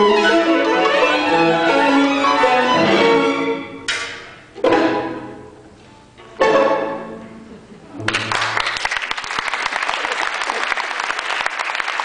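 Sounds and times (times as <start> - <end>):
string quartet chords: 0.0 - 8.3
audience applause: 8.0 - 12.0.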